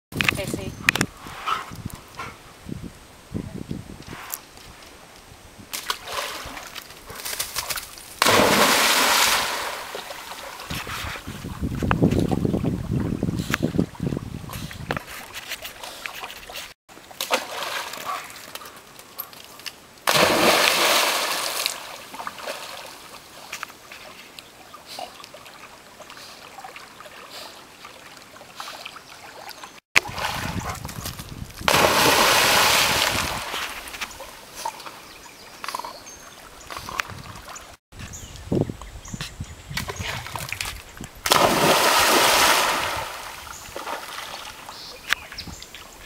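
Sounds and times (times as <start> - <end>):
water splashing and sloshing: 5.7 - 37.8, 39.9 - 45.9
loud sudden splashes: 8.2 - 10.0, 20.1 - 21.6, 31.7 - 33.5, 41.3 - 43.4.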